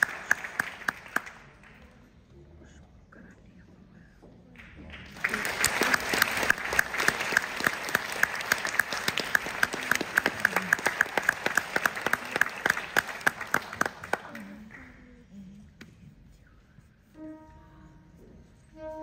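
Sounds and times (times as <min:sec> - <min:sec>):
audience applauding: 0:00.0 - 0:01.8, 0:04.9 - 0:14.8
close steady hand clapping: 0:00.0 - 0:01.8, 0:04.6 - 0:14.9.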